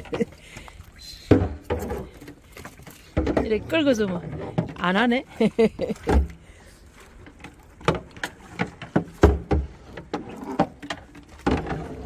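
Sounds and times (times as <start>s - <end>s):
fish baskets knocking and thumping: 7.3s - 12.0s.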